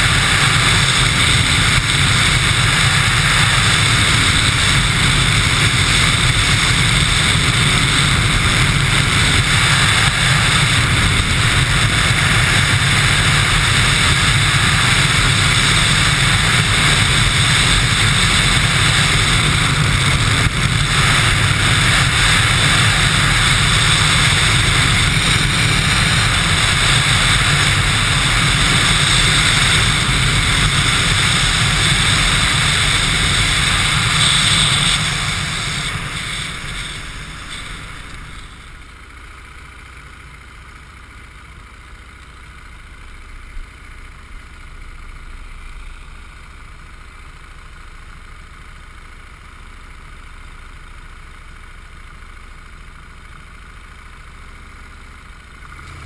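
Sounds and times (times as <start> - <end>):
wind rush on microphone: 0.0 - 38.8
motorcycle engine: 0.0 - 56.0.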